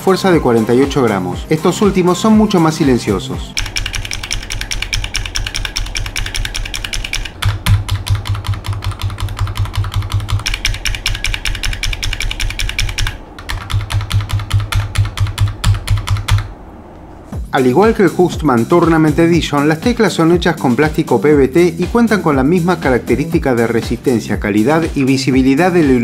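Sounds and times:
keyboard switch clacking: 3.6 - 16.5
sharp keyboard switch clicks: 3.6 - 16.5.

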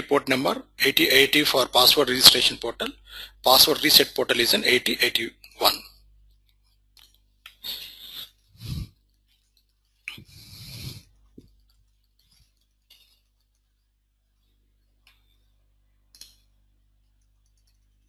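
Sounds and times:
keyboard typing: 17.0 - 18.0.

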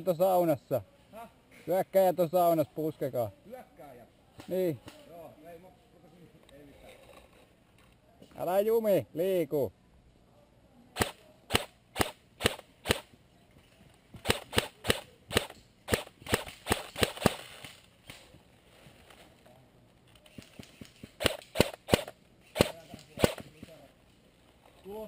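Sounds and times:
airsoft rifle shots: 11.0 - 13.1, 14.2 - 18.2, 20.4 - 23.8.

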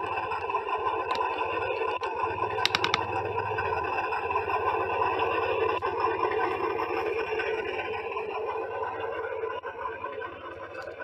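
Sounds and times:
engine-like drone: 0.0 - 11.0
quick clicks: 2.6 - 3.2.

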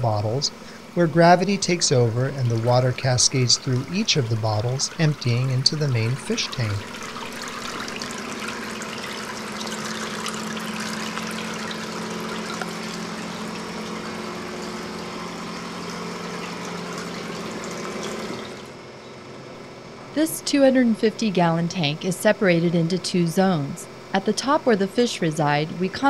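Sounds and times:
steady low hum: 0.0 - 17.8, 18.4 - 26.0
water trickling and splashing: 0.6 - 18.7.

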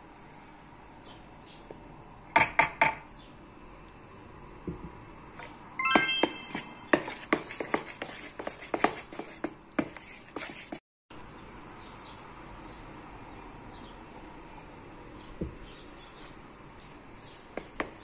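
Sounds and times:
brief ringing tone: 5.8 - 6.9.

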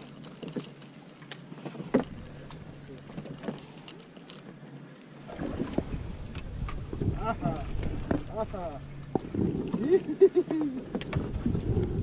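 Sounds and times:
fishing tackle clicks and knocks: 0.0 - 4.6
boat motor idling hum: 0.0 - 12.0.

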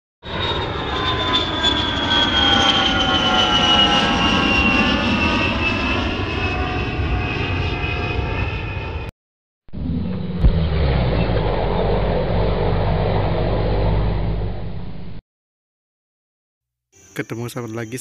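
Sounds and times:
airplane engine whine: 0.2 - 9.1, 9.7 - 15.2
steady engine rumble: 9.7 - 15.2.

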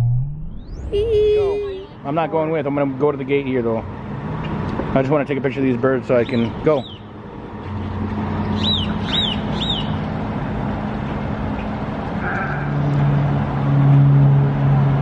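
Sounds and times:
high bird chirps: 8.5 - 10.0.

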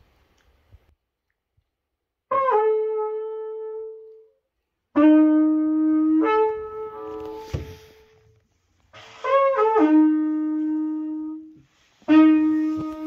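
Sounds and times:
wooden horn long notes: 5.0 - 13.0.

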